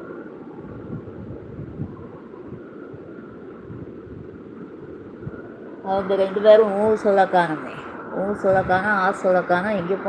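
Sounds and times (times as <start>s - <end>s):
low rumbling background noise: 0.0s - 10.0s.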